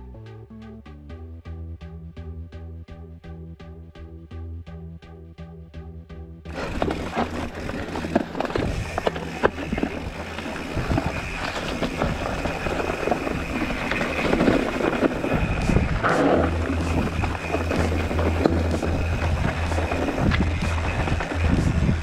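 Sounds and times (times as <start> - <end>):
bike rattling and clicking: 6.5 - 22.0
bike tyres rumbling on dirt trail: 6.5 - 22.0.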